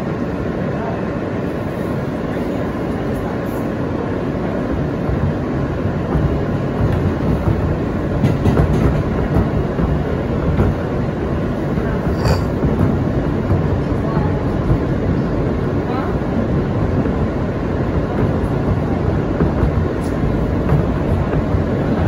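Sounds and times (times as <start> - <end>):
subway train wheels rumbling on rail: 0.0 - 22.0
rail-joint clicks: 6.0 - 15.1.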